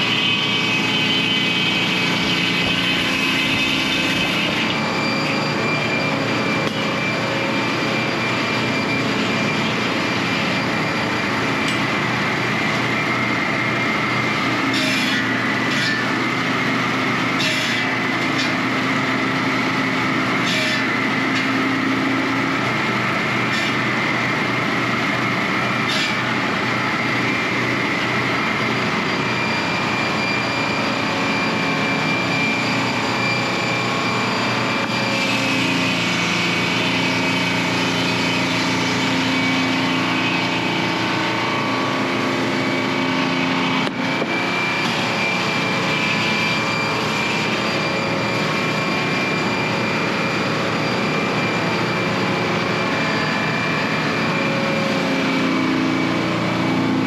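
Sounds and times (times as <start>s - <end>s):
engine running: 0.0s - 57.0s.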